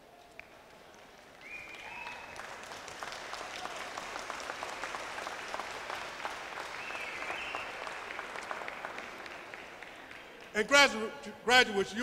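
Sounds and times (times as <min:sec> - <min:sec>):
audience applauding: 0:00.0 - 0:10.7
high whistles or calls: 0:01.4 - 0:02.4, 0:06.7 - 0:07.8.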